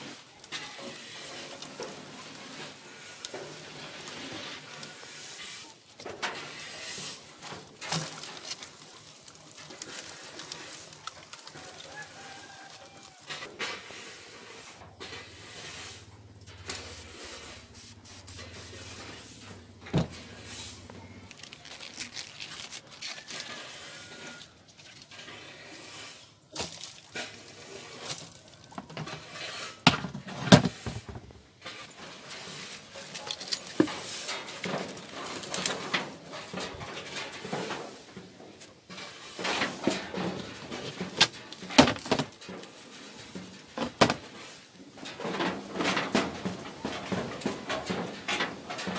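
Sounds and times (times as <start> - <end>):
plastic tubs knocking: 29.9 - 31.5, 40.3 - 42.4, 43.7 - 44.3.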